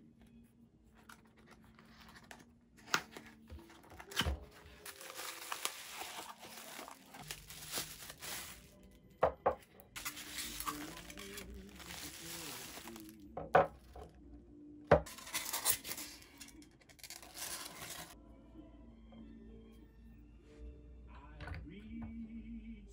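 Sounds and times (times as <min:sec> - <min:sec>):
paper rustling and rubbing: 0:03.2 - 0:08.7, 0:10.0 - 0:13.1, 0:17.0 - 0:18.2
bubble wrap crinkling: 0:03.6 - 0:08.9, 0:10.0 - 0:14.0, 0:15.1 - 0:18.2.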